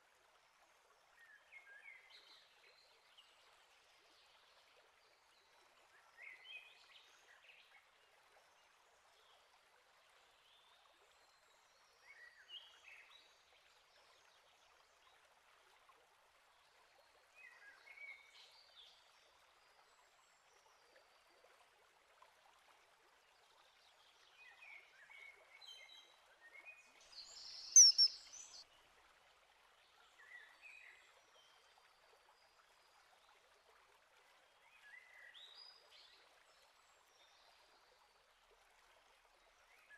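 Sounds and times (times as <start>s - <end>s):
faint steady hiss: 0.0s - 39.9s
songbird singing: 27.1s - 28.6s
sharp high-pitched bird call: 27.8s - 28.2s.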